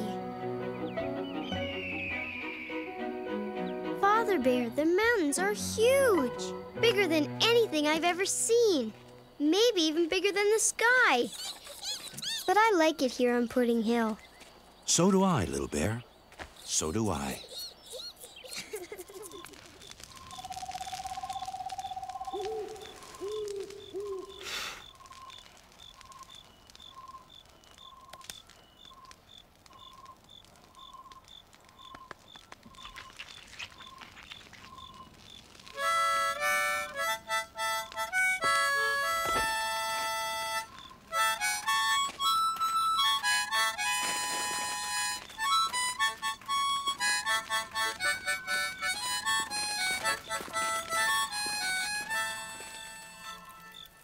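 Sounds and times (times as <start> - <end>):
high chirps: 0.0 - 4.0, 11.1 - 13.0, 15.5 - 54.0
fast trilling call: 1.3 - 3.1, 11.2 - 12.6
short hooting calls: 20.2 - 25.3
harmonica playing quick tune: 35.8 - 53.7.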